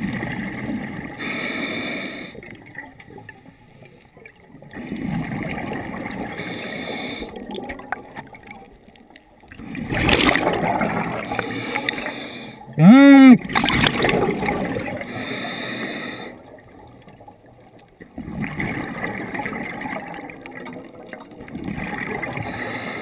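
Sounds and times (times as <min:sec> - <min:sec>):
regulator inhale hiss: 0:01.2 - 0:02.4, 0:06.4 - 0:07.4, 0:11.3 - 0:12.6, 0:15.1 - 0:16.4, 0:22.4 - 0:23.0
bubbling exhales: 0:09.6 - 0:16.7.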